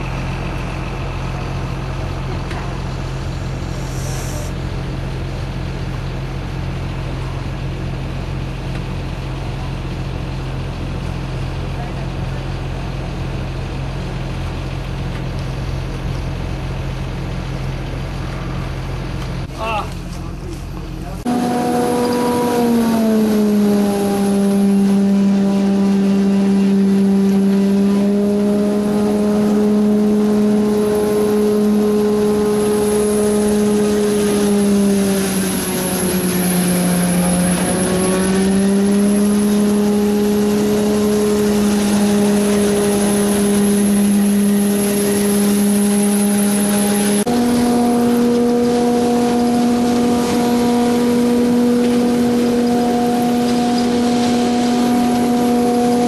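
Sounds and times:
faint high whine: 0.0 - 4.8
harvester engine humming: 0.0 - 56.0.

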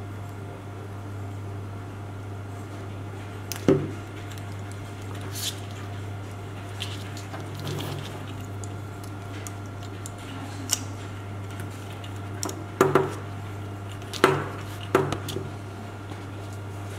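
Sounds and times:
steady low hum: 0.0 - 16.9.

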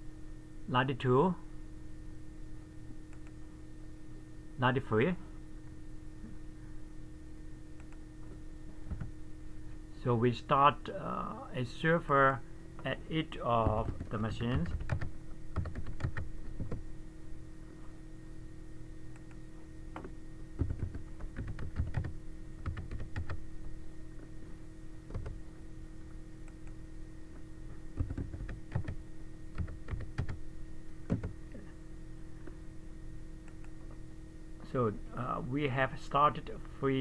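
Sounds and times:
steady low hum: 0.0 - 37.0
computer keyboard typing: 13.6 - 16.8, 20.6 - 23.4, 25.1 - 25.4, 28.0 - 30.4, 31.1 - 31.3.

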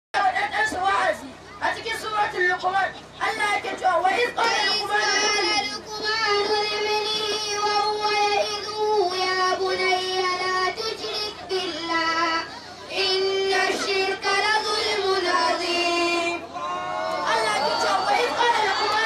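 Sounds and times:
boy chanting through microphone: 3.2 - 16.4.

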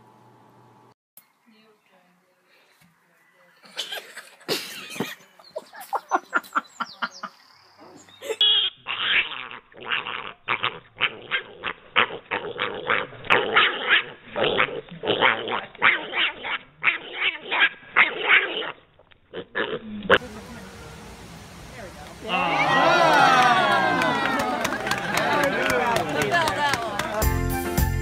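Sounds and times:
pig squealing and grunting: 8.6 - 20.2.

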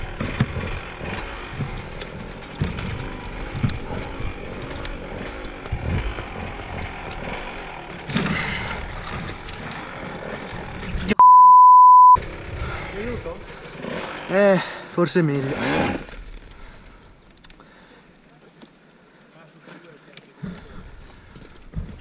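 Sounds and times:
dirt bike engine running low: 0.0 - 14.1
censor bleep: 11.2 - 12.2.

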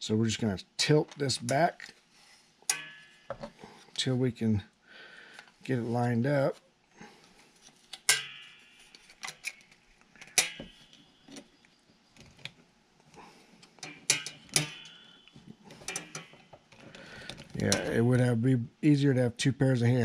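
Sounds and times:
brief metallic ring: 2.7 - 3.3, 8.1 - 8.9, 14.1 - 15.2
metal bolt clicking against plastic: 9.0 - 11.5, 13.6 - 17.9.

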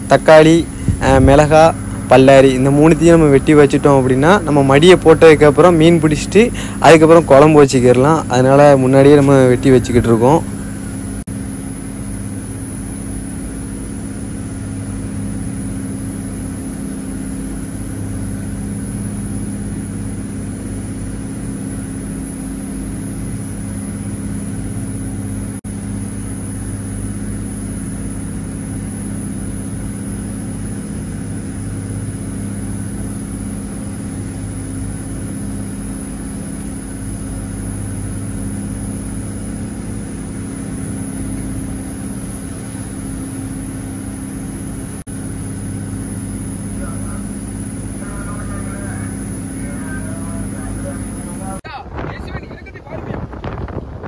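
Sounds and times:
diesel engine droning: 0.0 - 54.0.

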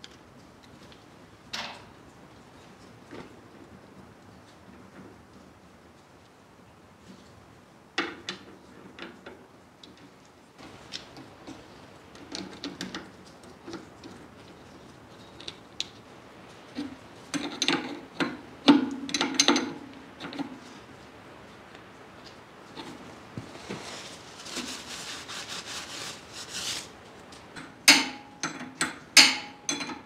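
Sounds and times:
metallic clanks: 27.6 - 30.0.

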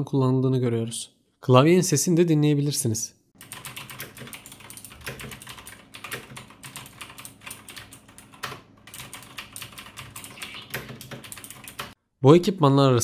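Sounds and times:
mechanical keyboard typing: 3.4 - 12.0.

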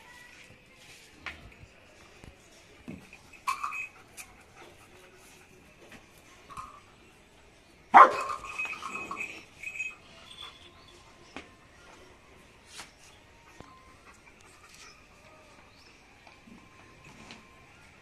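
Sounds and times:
dog barking: 7.9 - 8.4.

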